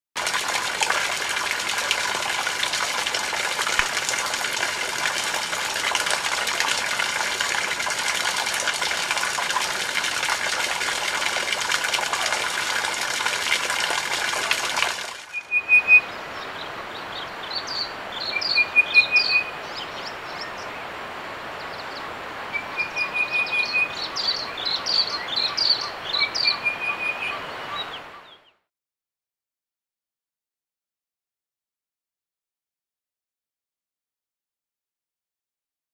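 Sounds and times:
fountain splashing into basin: 0.2 - 15.4
bird trill: 15.4 - 16.1.

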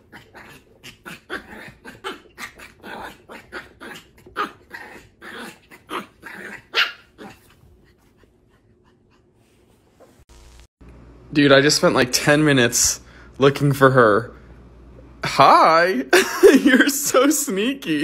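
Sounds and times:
small puppy barking: 1.3 - 7.4.

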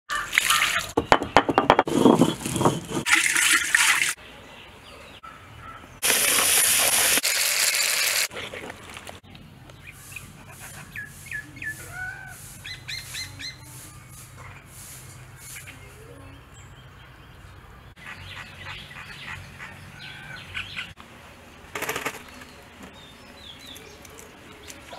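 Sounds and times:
water splashing on stone grinder: 6.0 - 8.3
small birds chirping: 9.2 - 21.4, 22.0 - 24.9.

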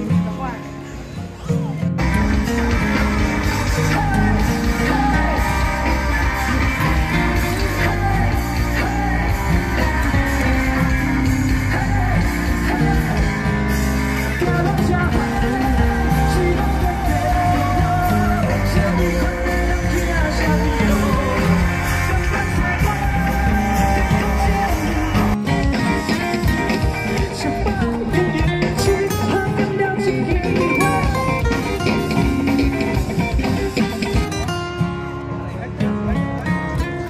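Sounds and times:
drums: 0.0 - 37.0
electric guitars: 0.0 - 37.0
person singing: 2.1 - 34.2.

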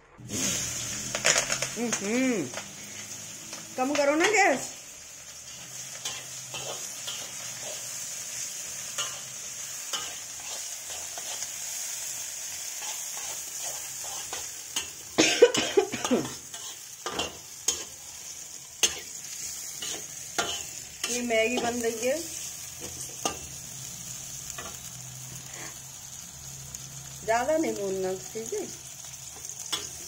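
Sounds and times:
vegetables sizzling in oil: 0.2 - 30.0
metal spatula scraping pan: 5.4 - 8.2, 8.8 - 11.6, 19.8 - 23.5.

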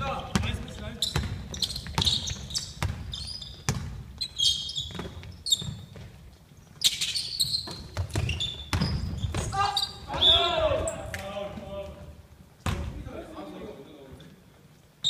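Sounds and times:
basketball bouncing on wooden floor: 0.2 - 6.3, 7.4 - 10.2
sneaker squeaks: 0.3 - 11.2.

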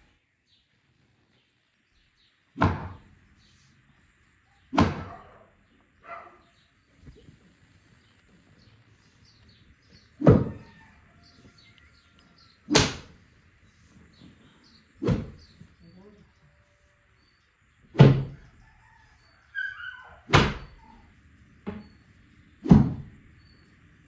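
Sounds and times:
birds chirping faintly: 0.0 - 24.0
stick whacking wool: 2.6 - 3.1, 4.7 - 5.1, 12.7 - 13.2, 15.0 - 15.4, 17.9 - 18.4, 20.3 - 20.7, 22.6 - 23.1.

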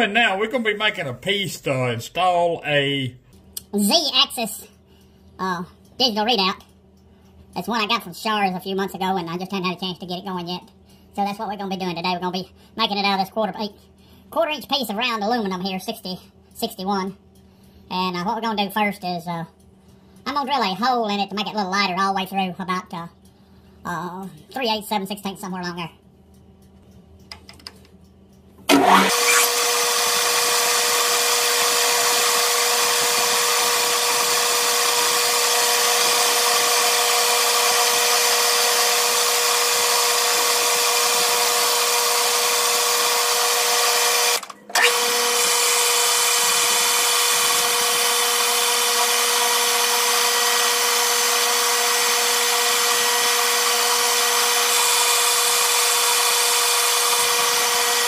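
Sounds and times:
metal lathe running with whine: 28.7 - 58.0.

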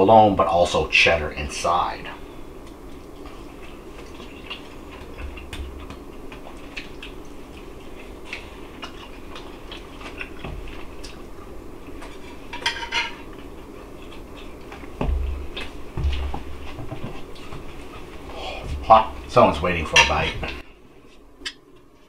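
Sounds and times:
dull thump: 15.0 - 17.2.

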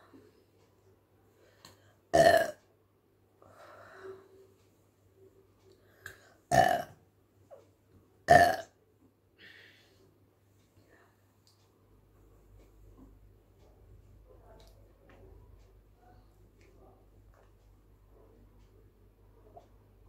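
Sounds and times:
woman burping: 2.2 - 2.6, 6.5 - 6.9, 8.3 - 8.7.

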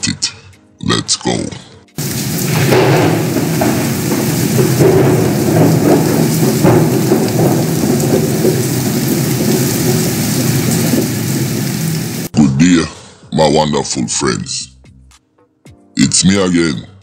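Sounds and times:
heavy rain: 2.0 - 12.3
thunder rumbling: 2.0 - 12.3.

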